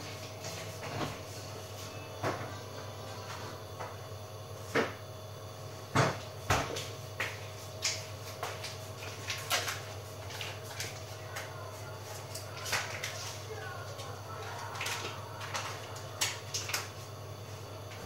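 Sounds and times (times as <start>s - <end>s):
washing machine humming: 0.0s - 18.0s
washing machine knocks and clunks: 5.9s - 6.9s.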